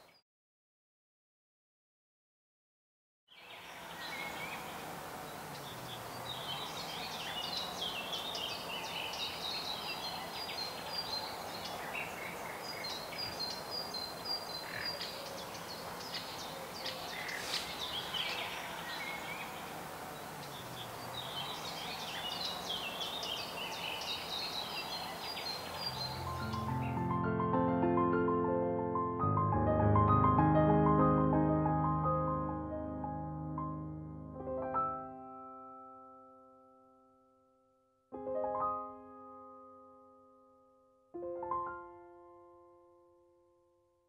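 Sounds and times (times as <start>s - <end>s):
small birds chirping: 3.3s - 27.0s
steady background hiss: 3.4s - 26.6s.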